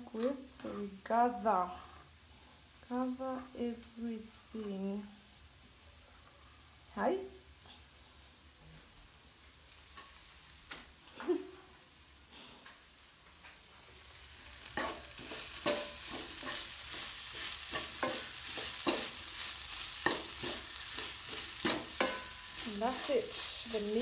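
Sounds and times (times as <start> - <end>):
stir-fry sizzling in a pan: 0.0 - 24.0
utensil scraping a pan: 14.8 - 24.0.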